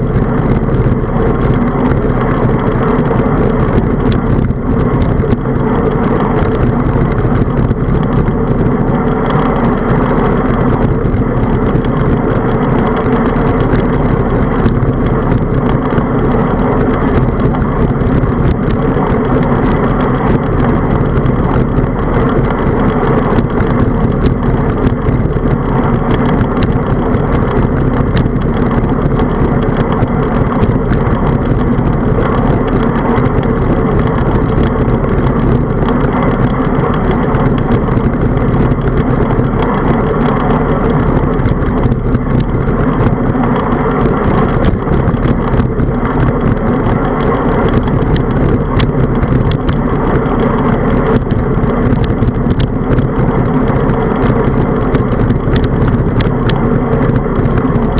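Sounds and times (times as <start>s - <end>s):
bike clicks and rattles: 0.0s - 57.9s
tyres on road: 0.0s - 57.9s
wind buffeting: 0.0s - 57.9s.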